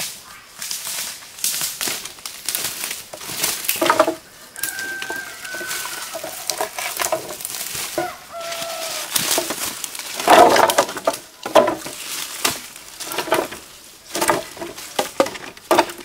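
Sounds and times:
sharp crackling and snapping: 0.0 - 16.0
chickens calling: 3.1 - 10.6.

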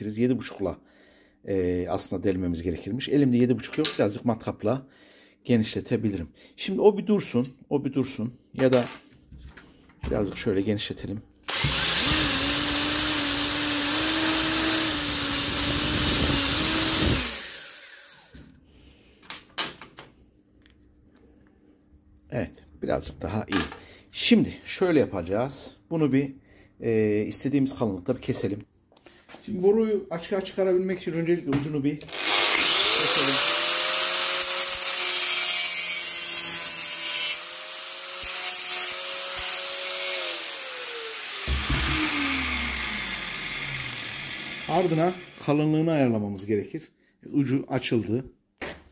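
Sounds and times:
electric drill running: 11.5 - 18.4, 32.1 - 45.6
power tool motor hum: 11.5 - 18.4, 32.1 - 45.4.

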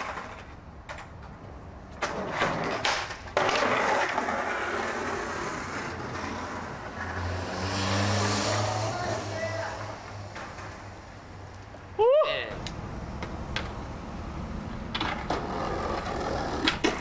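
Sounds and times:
skateboard clacks and knocks: 0.0 - 7.2, 14.9 - 17.0
skateboard wheels rolling on pavement: 0.0 - 17.0.

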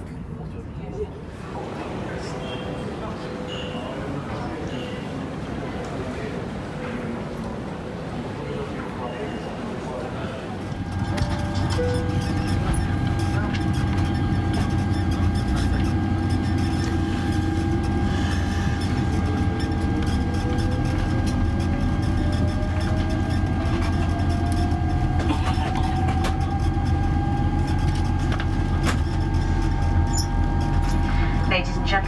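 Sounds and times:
low rumble in aircraft cabin: 10.6 - 32.0
jet engine whine spooling up: 10.7 - 32.0.

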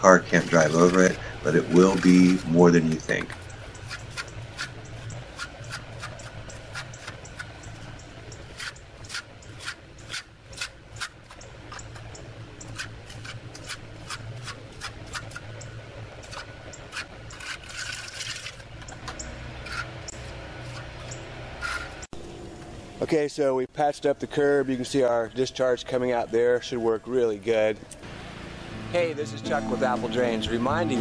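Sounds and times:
trowel scraping wet concrete: 0.2 - 7.5, 8.5 - 12.0, 12.7 - 15.4, 16.2 - 22.0.

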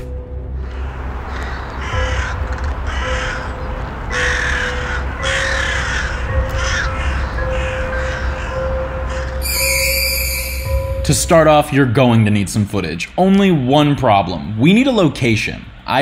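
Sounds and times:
crows cawing: 0.5 - 9.9.

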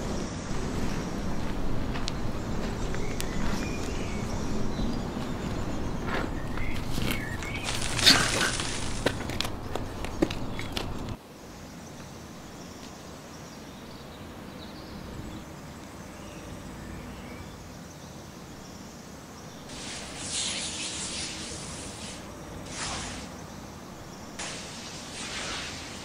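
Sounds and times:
loud hiss: 19.6 - 23.6, 24.3 - 26.0.

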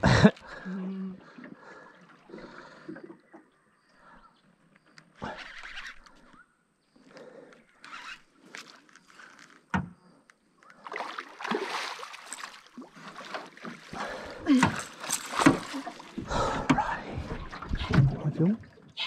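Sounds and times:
fish splashing at water surface: 10.8 - 14.0.

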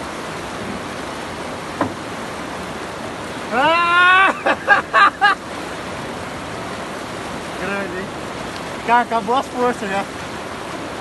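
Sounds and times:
river water rushing: 0.0 - 11.0
man shouting: 3.5 - 4.4.

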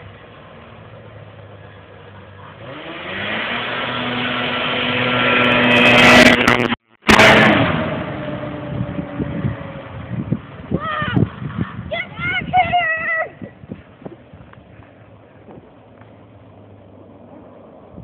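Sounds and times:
snowmobile engine passing by: 2.2 - 10.2.

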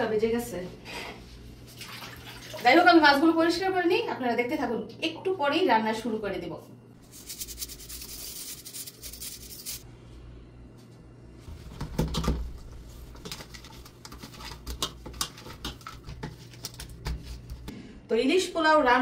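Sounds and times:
tap water running: 1.7 - 2.8.

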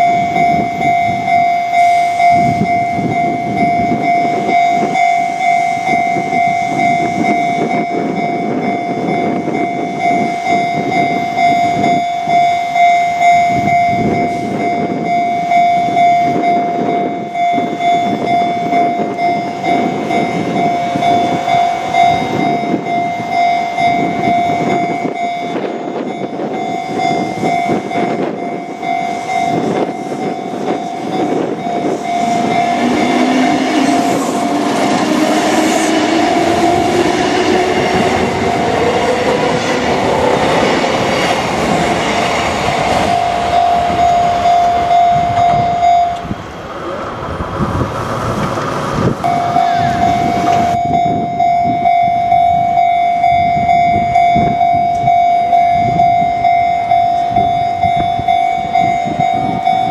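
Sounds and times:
level-crossing bell ringing: 0.0 - 46.3, 49.2 - 59.9
train wheel noise: 0.0 - 59.9
train motor whine rising: 13.7 - 59.9.

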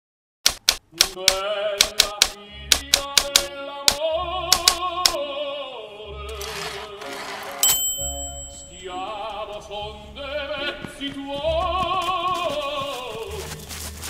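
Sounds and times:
typewriter keys clacking: 0.5 - 5.2
music with singing voice: 1.1 - 14.0.

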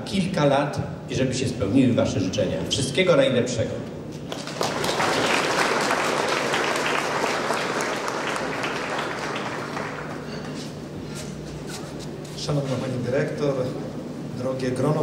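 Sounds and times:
audience applauding: 4.3 - 10.6.

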